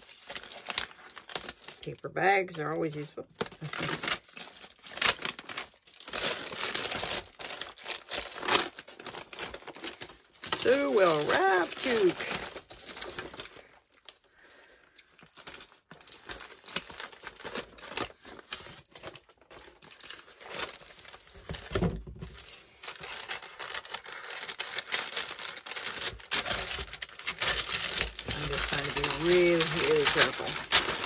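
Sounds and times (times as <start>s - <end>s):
crinkling and rustling packaging: 0.0s - 31.0s.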